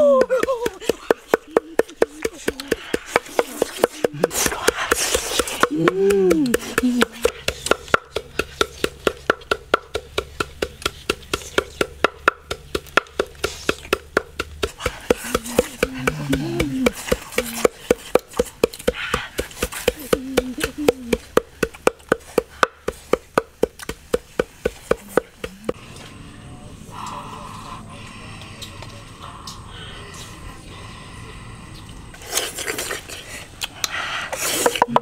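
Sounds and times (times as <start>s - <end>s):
wooden pestle pounding: 0.0s - 25.8s, 34.6s - 35.0s.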